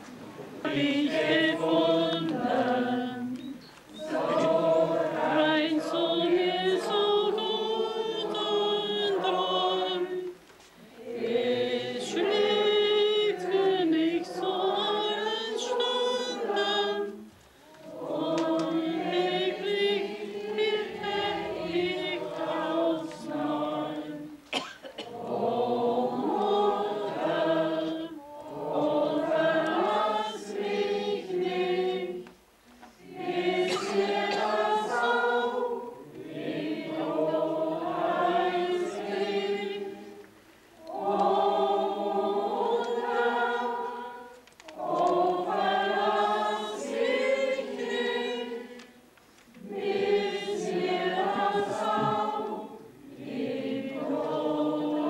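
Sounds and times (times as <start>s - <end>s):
congregation singing a hymn: 0.0s - 55.0s.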